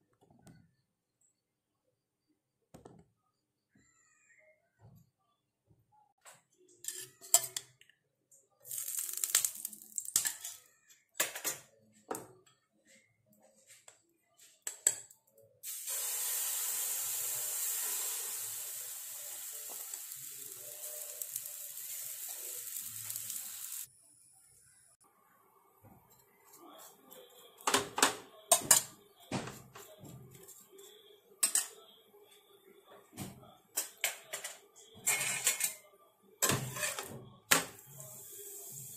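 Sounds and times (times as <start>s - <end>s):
batter sizzling on a pan: 8.7s - 10.1s, 15.6s - 23.9s.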